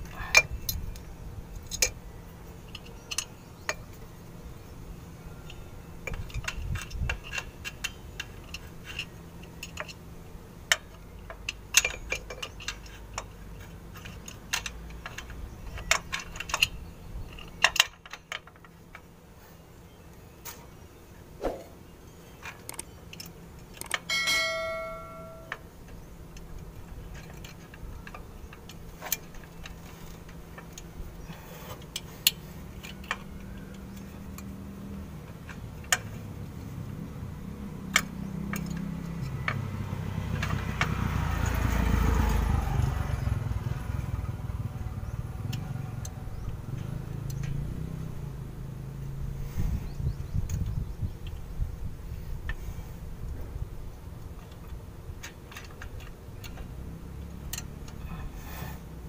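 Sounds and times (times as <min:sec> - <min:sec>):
light metallic clicks and clinks: 0:10.7 - 0:19.1, 0:37.8 - 0:42.5, 0:54.3 - 0:58.3
ringing metal clink: 0:24.0 - 0:25.6.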